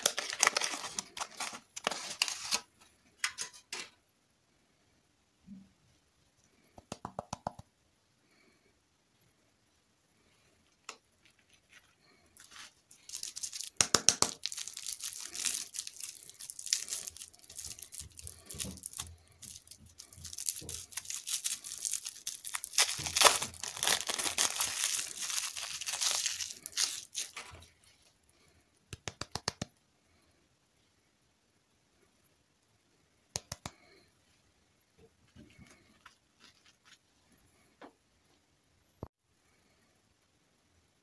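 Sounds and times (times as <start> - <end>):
wrapper crinkling and tearing: 0.0 - 2.7, 11.2 - 27.8.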